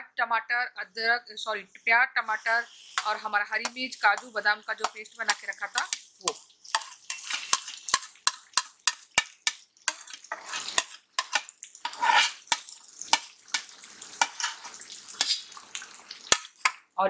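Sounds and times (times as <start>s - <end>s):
oil sizzling: 1.8s - 17.0s
steel spatula tapping and scraping: 2.8s - 16.9s.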